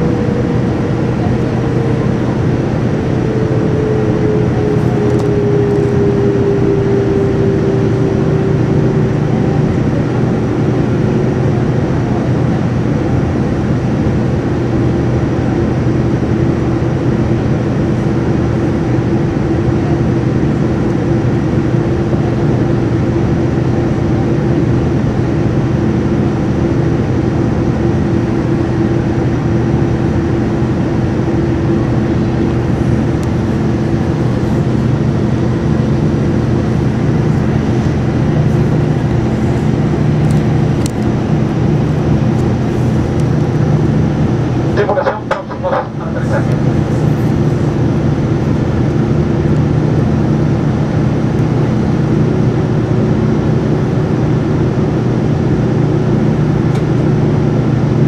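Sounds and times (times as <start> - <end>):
jet engines humming: 0.0 - 58.0
airflow rushing: 31.2 - 51.3.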